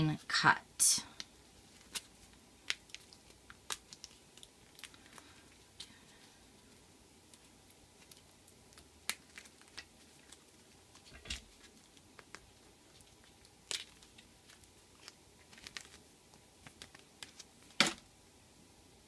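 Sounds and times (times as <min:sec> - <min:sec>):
sticker sheet crinkling: 0:01.7 - 0:05.3, 0:07.4 - 0:17.8.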